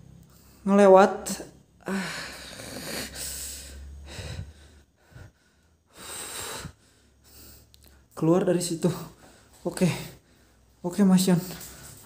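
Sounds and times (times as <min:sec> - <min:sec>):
man breathing heavily: 0:01.8 - 0:08.2, 0:08.8 - 0:12.0.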